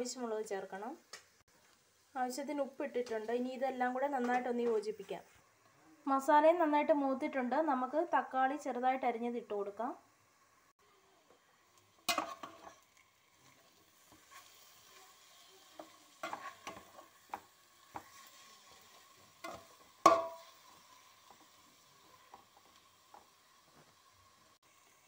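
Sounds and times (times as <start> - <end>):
faint sizzle: 0.0 - 25.0
spoon scraping a pan: 12.0 - 23.3.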